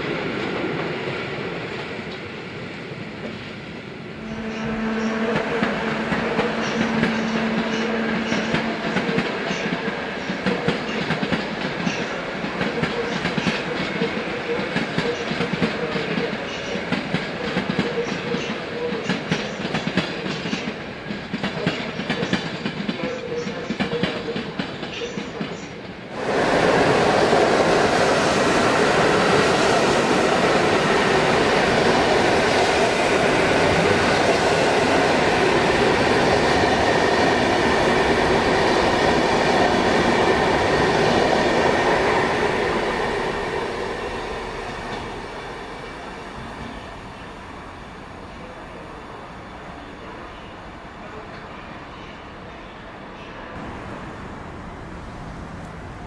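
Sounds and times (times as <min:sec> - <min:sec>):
train coaches rumbling past: 0:00.0 - 0:56.0
locomotive hum: 0:01.7 - 0:15.2, 0:53.5 - 0:56.0
train wheels clattering over points: 0:05.0 - 0:18.5.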